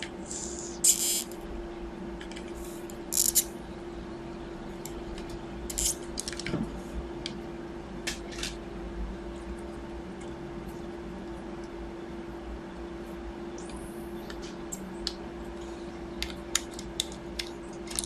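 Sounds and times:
steady hum: 0.0 - 18.0
solder sizzling: 0.2 - 1.3.

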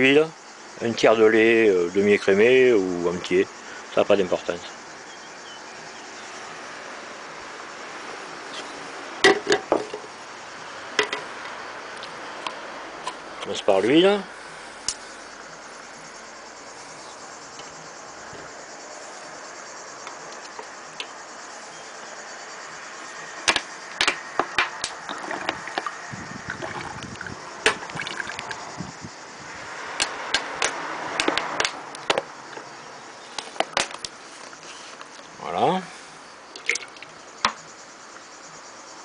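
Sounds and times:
oil pouring into metal cup: 36.5 - 37.1.

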